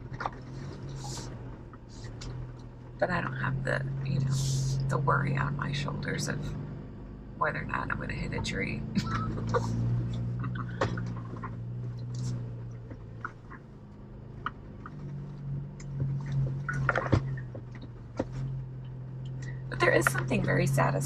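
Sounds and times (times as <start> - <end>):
car engine droning: 0.0 - 21.0
knocks and rattles: 8.3 - 20.5.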